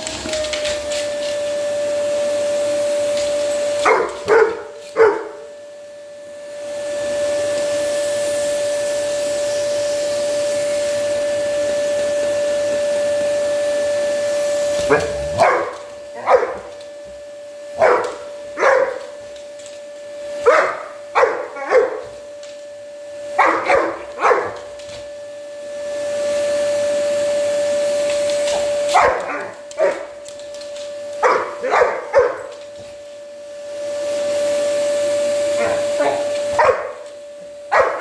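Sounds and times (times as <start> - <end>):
vacuum cleaner motor whining: 0.0 - 38.0
dog barking: 3.8 - 5.5, 14.9 - 16.7, 17.8 - 19.1, 20.4 - 22.1, 23.4 - 24.6, 28.9 - 30.1, 31.2 - 32.5, 35.6 - 37.0, 37.7 - 38.0.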